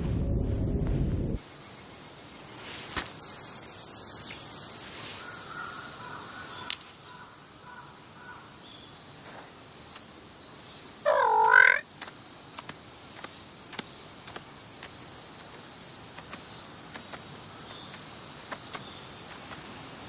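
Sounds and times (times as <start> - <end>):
deep soundtrack rumble: 0.0 - 1.4
faint high hiss: 1.4 - 20.0.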